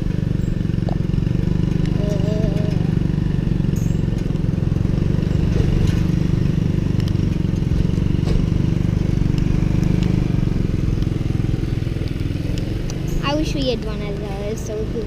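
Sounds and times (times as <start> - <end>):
small engine running: 0.0 - 15.0
light rattling clicks: 1.6 - 3.1.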